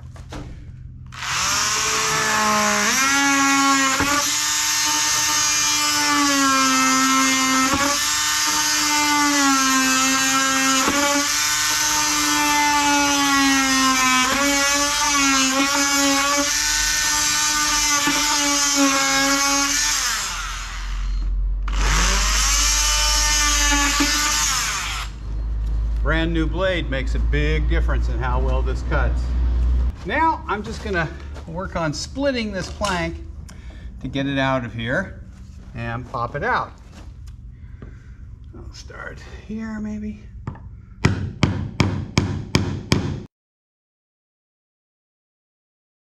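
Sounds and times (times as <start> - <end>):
oscillating multi-tool cutting wood: 1.1 - 25.2.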